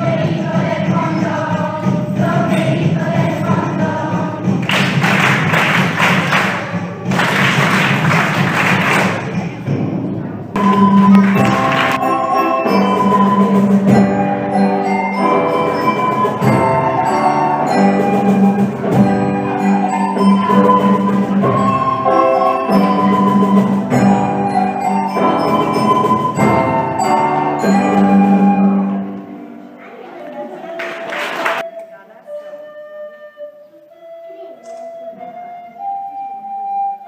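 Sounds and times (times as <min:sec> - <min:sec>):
pitched percussion notes: 0:00.0 - 0:29.7
children's ensemble music: 0:00.0 - 0:37.0
audience applause: 0:04.7 - 0:09.4, 0:10.6 - 0:12.1, 0:30.3 - 0:31.6.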